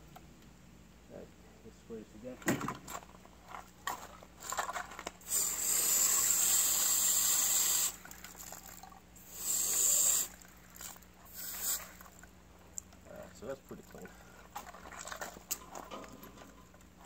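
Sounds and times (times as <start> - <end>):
cleaning spray hissing: 5.2 - 8.1, 9.2 - 10.4, 11.3 - 12.2.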